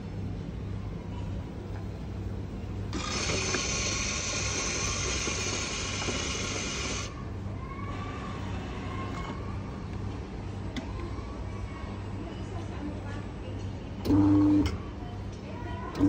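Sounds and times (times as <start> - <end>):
coffee machine hissing: 2.9 - 7.2.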